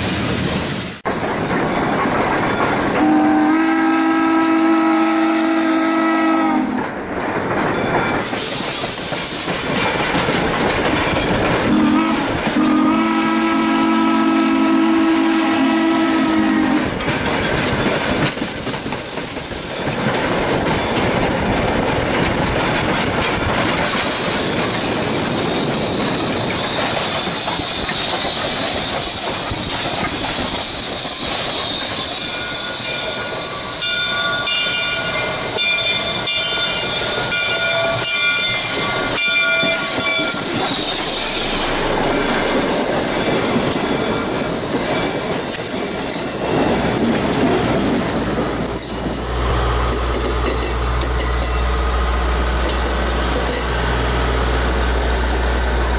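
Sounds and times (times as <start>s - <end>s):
coach wheels rumbling: 0.0s - 55.9s
train running and rail noise: 0.0s - 55.9s
steam whistle blasts: 3.0s - 6.8s, 11.7s - 16.9s.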